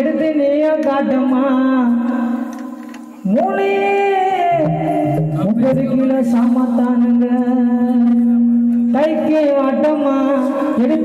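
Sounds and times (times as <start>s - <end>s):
man singing into a microphone: 3.3s - 11.0s.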